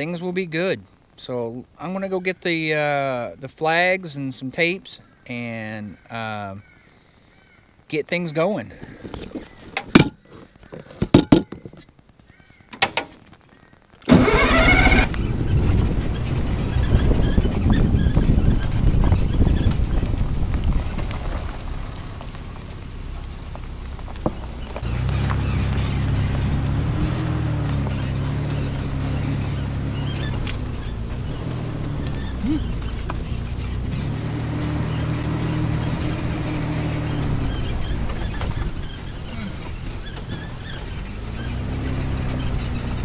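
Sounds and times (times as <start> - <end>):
clicks and knocks from bumps: 8.8 - 14.1
bulldozer engine running: 14.1 - 43.0.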